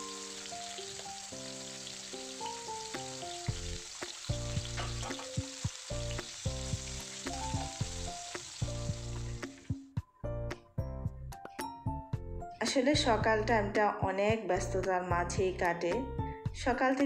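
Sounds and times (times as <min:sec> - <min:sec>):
gourd slices sizzling in oil: 0:00.0 - 0:09.8
background music with held notes: 0:00.0 - 0:17.0.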